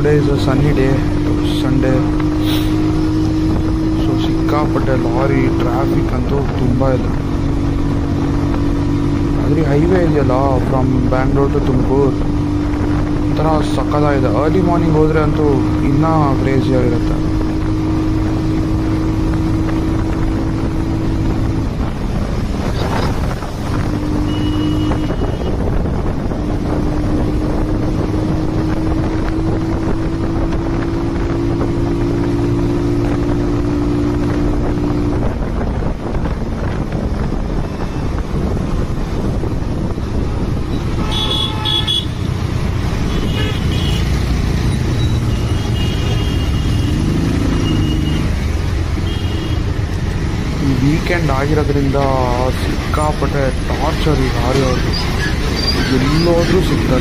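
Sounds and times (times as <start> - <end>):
motorcycle engine running: 11.8 - 52.0
wind on microphone: 16.5 - 57.0
vehicle horn toots: 24.2 - 25.6, 40.8 - 42.3, 43.1 - 44.1, 45.0 - 48.3, 49.0 - 49.7.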